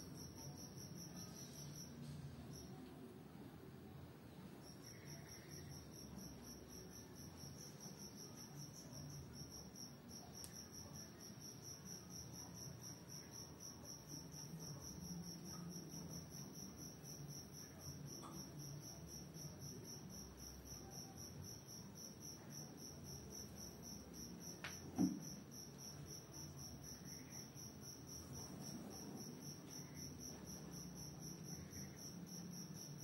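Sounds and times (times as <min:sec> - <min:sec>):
cricket chirping: 0:00.0 - 0:02.9, 0:04.4 - 0:33.0
faint low hum: 0:00.0 - 0:33.0
short knock: 0:24.9 - 0:25.2.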